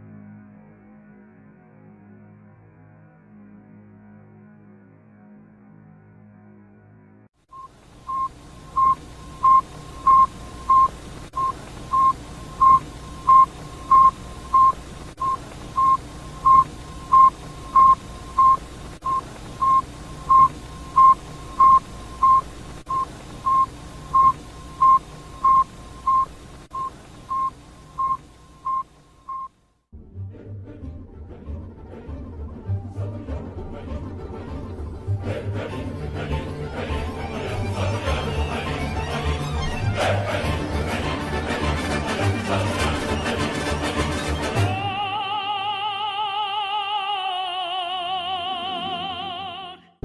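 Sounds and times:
short even radio beeps: 7.5 - 29.6
radio hiss: 7.6 - 29.3.

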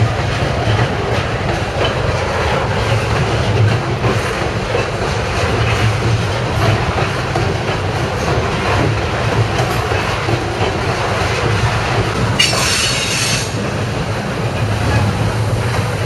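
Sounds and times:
train wheels rumbling and rattling: 0.0 - 16.0
high wheel squeal: 12.4 - 13.6.

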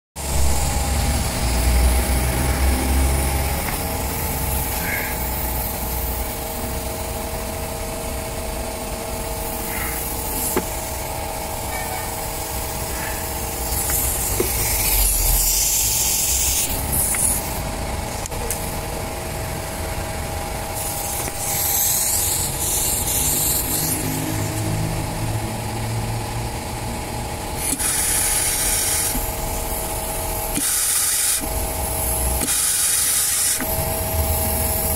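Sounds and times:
hissing noise bursts: 0.2 - 7.3, 9.2 - 18.8, 27.6 - 34.9
machine humming: 0.2 - 34.9.

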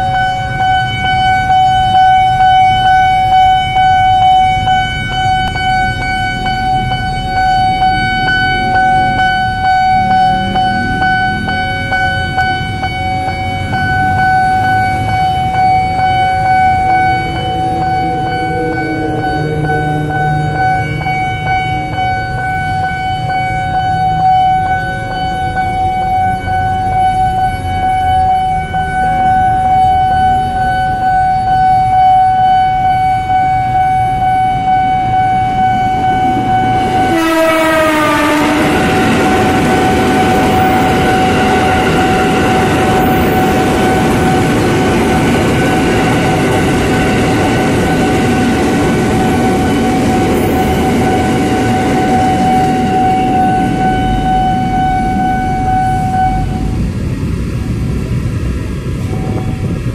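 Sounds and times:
level crossing alarm ringing: 0.0 - 57.2
train running past: 0.0 - 59.9
train horn: 16.3 - 23.6, 32.2 - 44.5, 49.6 - 56.8.

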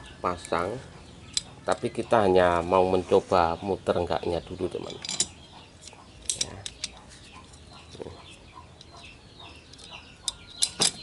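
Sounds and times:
chickens clucking: 0.0 - 10.8
metal clicks and knocks: 4.8 - 7.0, 9.7 - 11.0.

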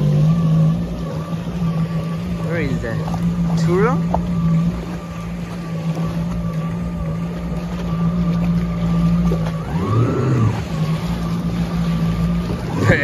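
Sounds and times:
jet ski engine: 0.0 - 13.0
water noise: 0.0 - 13.0
wind: 0.0 - 13.0.

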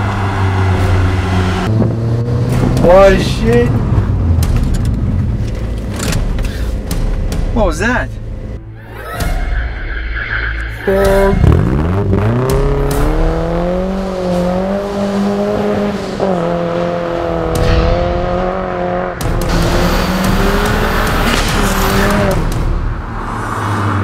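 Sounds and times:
car engine revving hard: 11.0 - 24.0.

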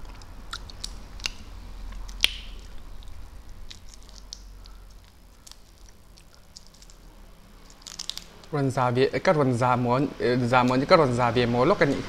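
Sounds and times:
faint clicks and crackles: 0.0 - 8.6
prawn shell cracking: 0.0 - 8.6.

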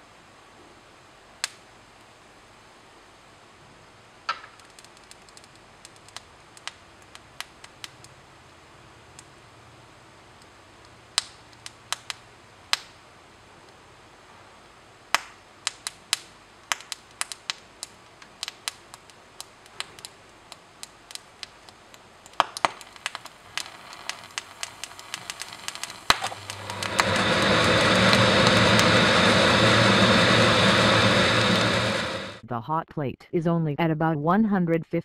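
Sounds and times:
sharp pops and crackles: 1.4 - 1.6, 4.2 - 8.2, 10.4 - 13.0, 15.1 - 32.4
rushing noise of burning gas: 20.8 - 32.4.

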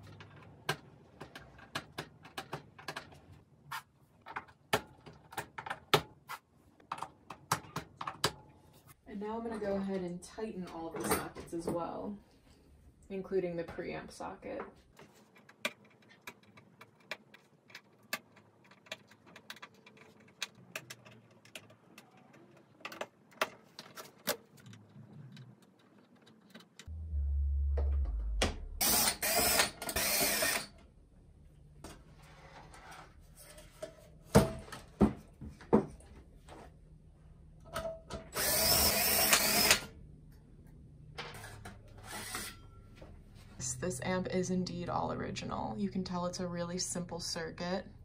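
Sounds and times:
cordless drill whirring: 28.8 - 30.7, 38.4 - 39.9.

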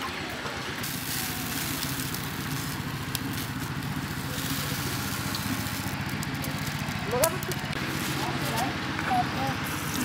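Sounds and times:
small engine chugging: 0.0 - 10.0
rice pouring into plastic bucket: 0.8 - 6.9.

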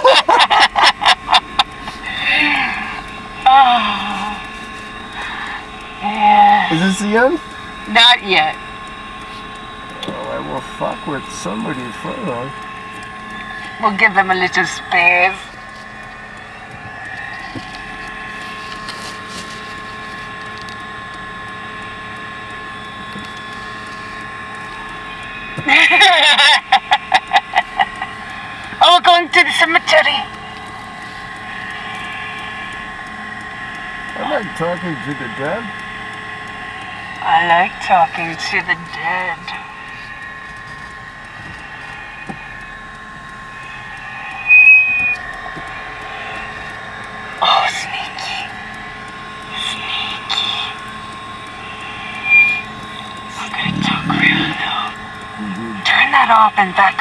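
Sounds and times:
mechanical drone with high tones: 0.0 - 57.0
car cabin road noise: 36.5 - 57.0
loud high-pitched shriek: 43.5 - 46.7, 51.6 - 53.8.

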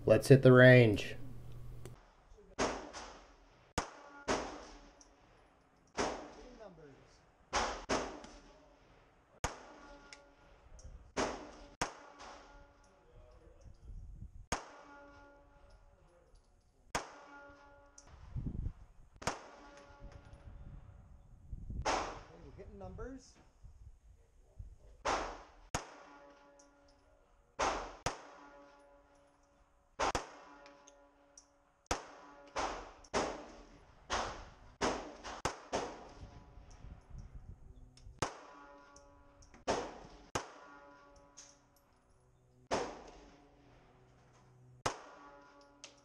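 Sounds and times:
pistol shots: 2.6 - 5.3, 5.9 - 6.4, 7.5 - 8.5, 9.4 - 10.1, 11.1 - 12.6, 14.5 - 15.0, 16.9 - 18.2, 19.2 - 19.8, 21.8 - 22.3, 25.0 - 26.4, 27.6 - 28.8, 30.0 - 30.8, 31.9 - 36.3, 38.2 - 38.8, 39.7 - 41.0, 42.7 - 43.4, 44.8 - 45.6.

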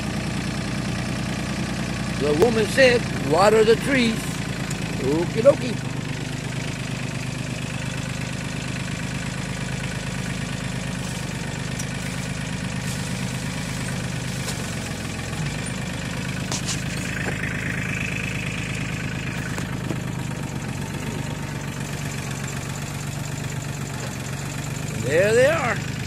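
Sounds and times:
tractor diesel engine running: 0.0 - 26.0
high whine: 10.3 - 22.6.

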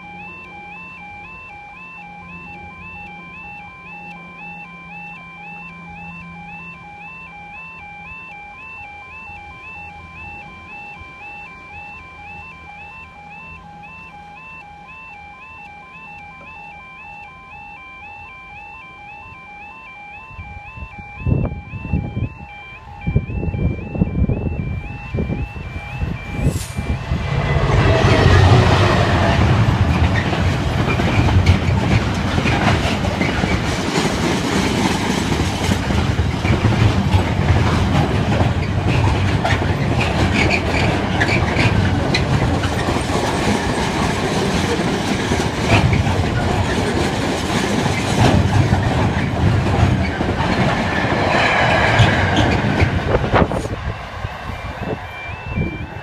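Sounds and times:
diesel locomotive engine rumble: 0.0 - 56.0
freight wagons rumbling: 22.9 - 55.8
wheels clattering over rail joints: 27.8 - 53.8.

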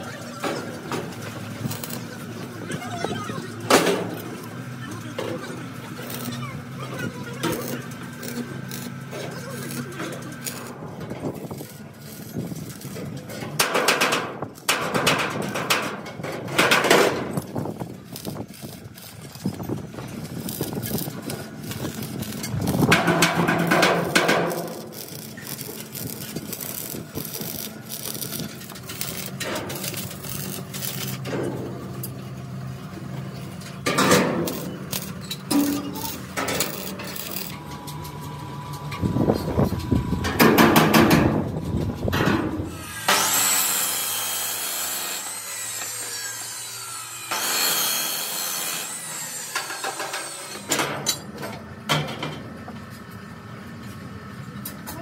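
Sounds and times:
power tool noise: 0.9 - 13.0, 16.5 - 41.3, 42.1 - 51.1
workshop knocks and clicks: 12.8 - 32.2, 33.5 - 43.4, 49.5 - 53.1.

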